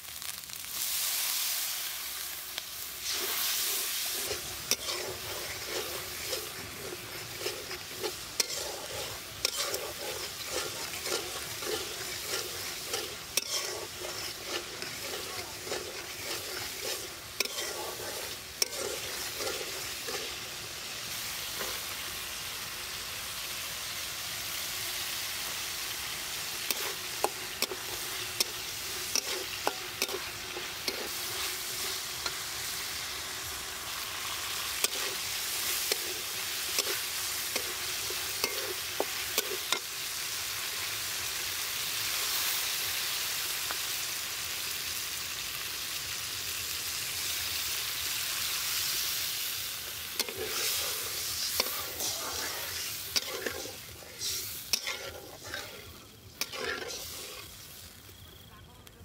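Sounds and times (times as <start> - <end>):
paste sizzling in hot oil: 0.0 - 58.5
metal spatula scraping a pan: 3.0 - 22.0, 26.5 - 39.9, 49.9 - 57.8.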